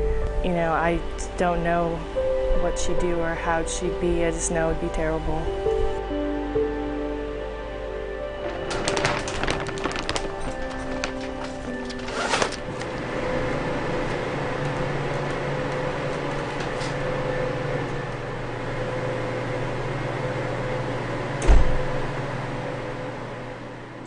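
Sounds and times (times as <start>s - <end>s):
low mechanical hum: 0.0s - 24.0s
heavy thump: 21.4s - 21.9s.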